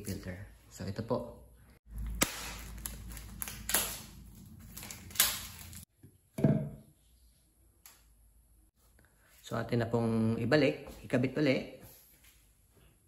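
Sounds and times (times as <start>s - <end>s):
plastic wrapping rustling: 2.4s - 5.9s.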